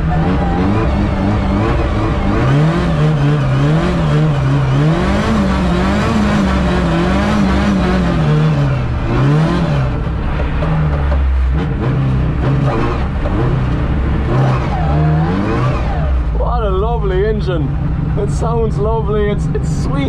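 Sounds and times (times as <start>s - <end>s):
race car engine revving: 0.0s - 20.0s.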